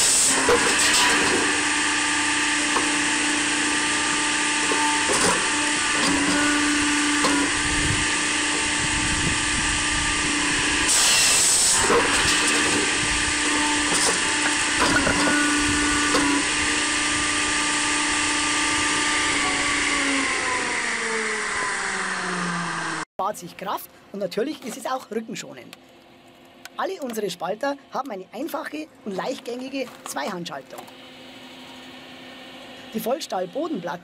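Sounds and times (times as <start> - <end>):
saw rasping through log: 0.0 - 22.6
firewood processor whine: 0.0 - 34.0.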